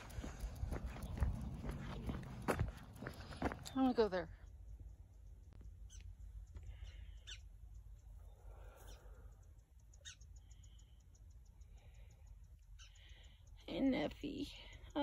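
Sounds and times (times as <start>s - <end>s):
low rumble: 0.0s - 5.5s.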